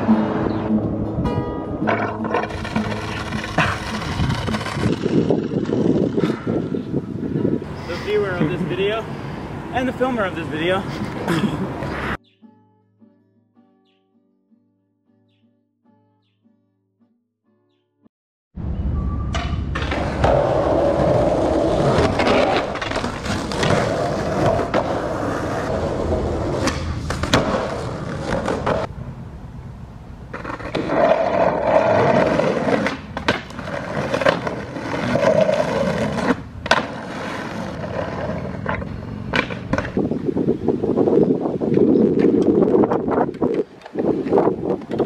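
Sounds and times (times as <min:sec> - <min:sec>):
skateboard wheels rolling on asphalt: 0:01.7 - 0:12.2, 0:19.4 - 0:45.0
skateboard clacks: 0:01.8 - 0:06.6, 0:26.2 - 0:28.9, 0:30.3 - 0:40.0.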